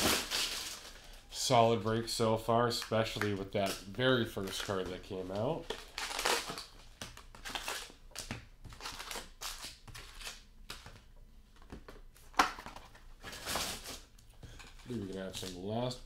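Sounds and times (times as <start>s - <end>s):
foil packs rustling and crinkling: 0.0s - 1.2s, 2.7s - 10.4s, 12.6s - 16.0s.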